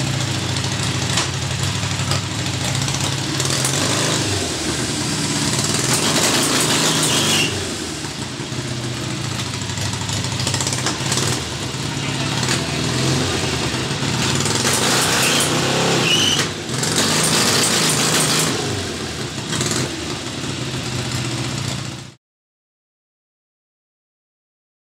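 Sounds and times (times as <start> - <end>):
motorcycle engine revving: 0.0 - 22.2.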